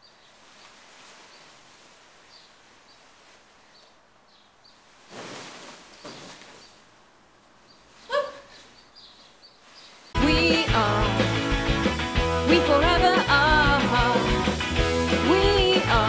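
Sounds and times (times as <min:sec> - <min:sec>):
satin fabric rustling: 0:00.0 - 0:10.2
high-pitched vocal cry: 0:08.1 - 0:08.6.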